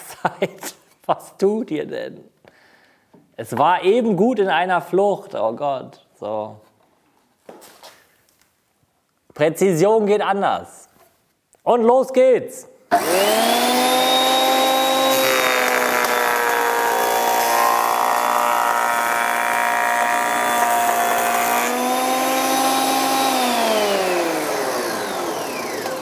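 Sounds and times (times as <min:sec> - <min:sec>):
planer motor whine: 0:12.9 - 0:26.0.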